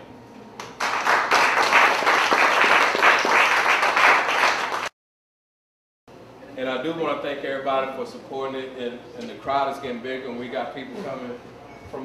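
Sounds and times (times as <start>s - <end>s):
audience applauding: 0.6s - 4.9s.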